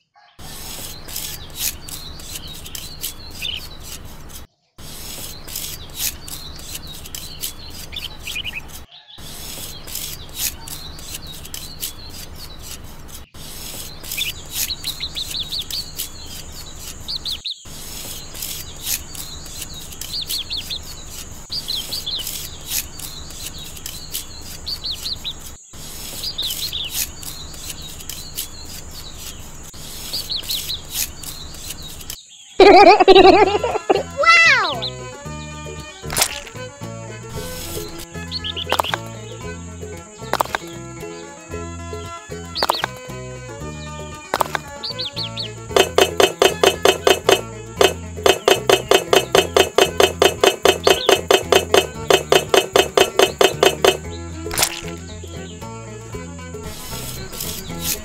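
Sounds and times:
birds chirping: 0.0s - 58.0s
trowel scraping wet cement: 0.4s - 32.2s, 37.4s - 38.1s, 45.8s - 55.1s, 56.6s - 58.0s.

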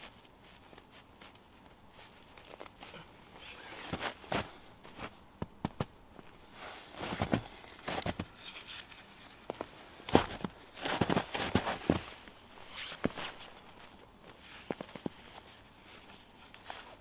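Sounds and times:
footsteps crunching in snow: 3.6s - 17.0s.

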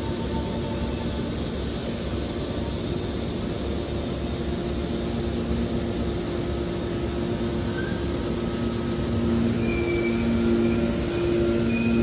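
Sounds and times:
short high squeals: 9.4s - 12.0s.

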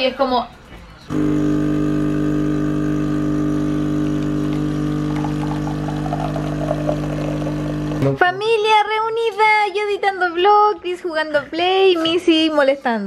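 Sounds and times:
coffee sputtering and gurgling: 1.1s - 8.1s
espresso machine pump humming: 1.1s - 8.1s.

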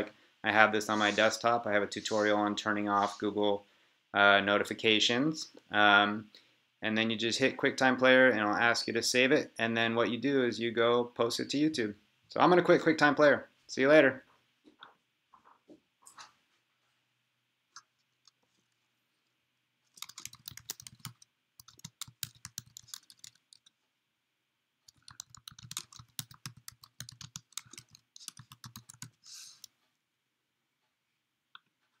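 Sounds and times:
keyboard typing: 19.9s - 23.7s, 24.9s - 29.7s.

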